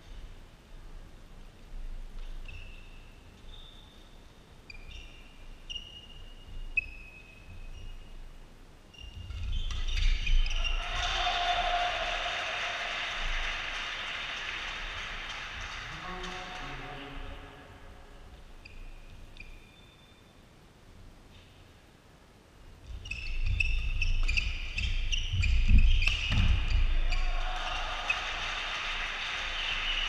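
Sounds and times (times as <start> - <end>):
sneakers squeaking on floor: 2.2 - 8.3, 8.9 - 10.8, 22.8 - 27.3
audience applause: 10.8 - 16.9, 27.3 - 30.0.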